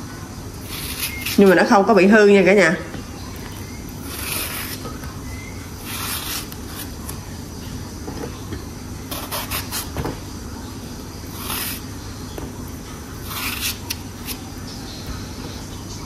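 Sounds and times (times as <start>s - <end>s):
low background hum: 0.0s - 16.0s
knife cutting on cutting board: 0.6s - 1.6s, 4.0s - 4.9s, 5.8s - 7.2s, 9.1s - 10.0s, 11.3s - 11.8s, 13.2s - 14.4s.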